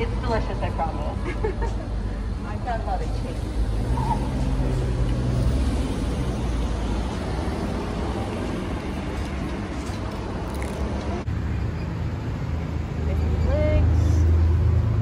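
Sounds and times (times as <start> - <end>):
city street traffic: 0.0 - 15.0.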